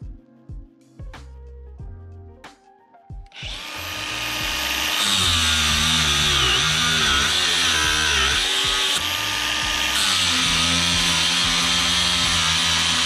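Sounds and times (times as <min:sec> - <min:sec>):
angle grinder cutting metal: 0:03.4 - 0:13.0.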